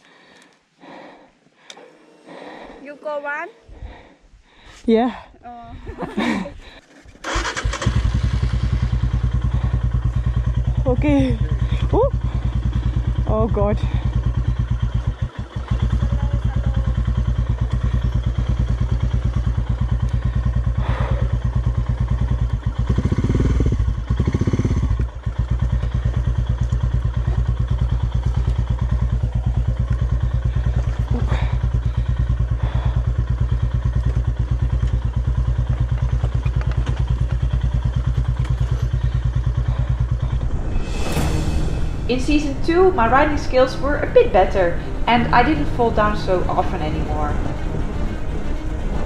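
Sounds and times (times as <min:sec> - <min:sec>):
motorcycle engine chugging: 0:05.0 - 0:49.0
motorcycle knocks and clatters: 0:35.6 - 0:39.0.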